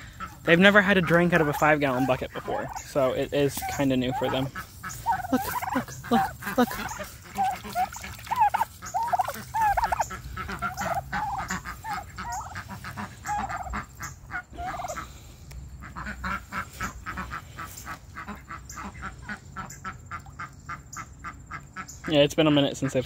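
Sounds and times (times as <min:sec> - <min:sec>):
poultry yelping: 0:00.0 - 0:15.2.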